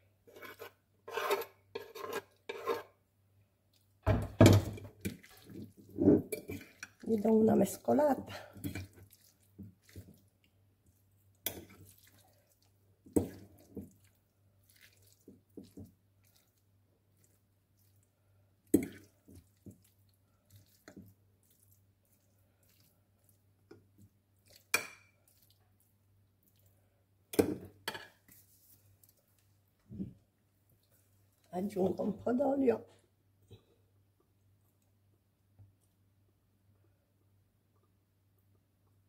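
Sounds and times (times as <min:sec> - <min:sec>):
fork scraping ceramic dish: 0:00.3 - 0:03.0.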